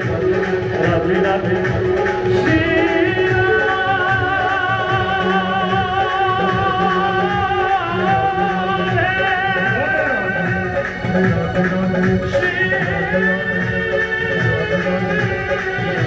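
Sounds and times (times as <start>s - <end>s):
steady drum beat: 0.0s - 16.0s.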